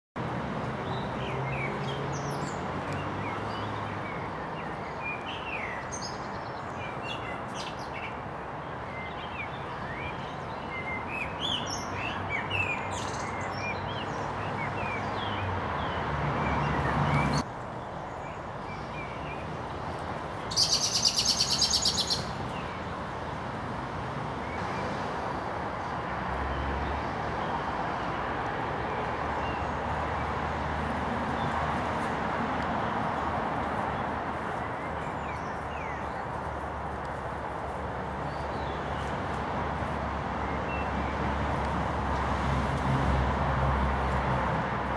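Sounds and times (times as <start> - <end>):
small birds chirping: 0.8 - 23.1, 33.0 - 41.3.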